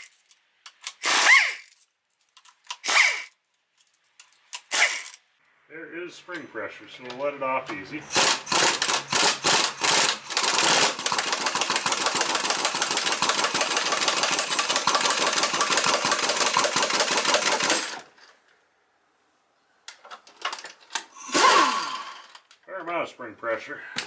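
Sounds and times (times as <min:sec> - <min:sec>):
pneumatic impact wrench hammering: 0:00.8 - 0:01.7, 0:02.7 - 0:03.3, 0:04.5 - 0:05.2, 0:08.1 - 0:18.0, 0:21.1 - 0:22.4.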